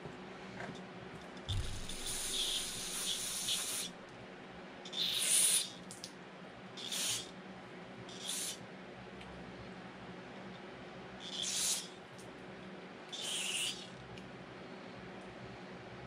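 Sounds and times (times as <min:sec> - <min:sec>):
aerosol can spraying: 0:01.5 - 0:03.9.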